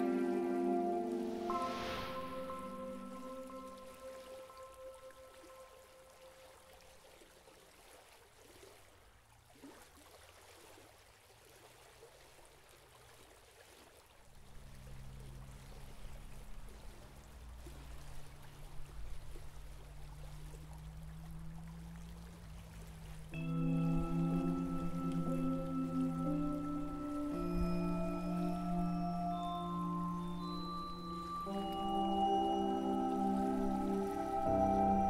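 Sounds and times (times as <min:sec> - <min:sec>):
low held musical drone: 0:00.0 - 0:06.7, 0:14.5 - 0:35.0
river flowing: 0:00.0 - 0:35.0.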